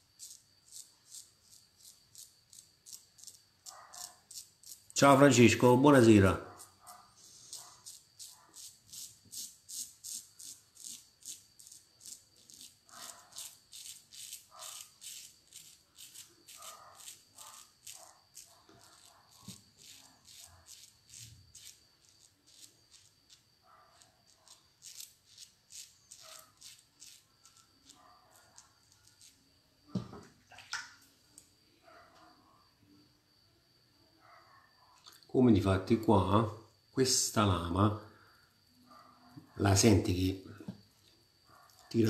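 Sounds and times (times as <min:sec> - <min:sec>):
razor scraping stubble: 0:00.0 - 0:05.2, 0:06.4 - 0:29.4.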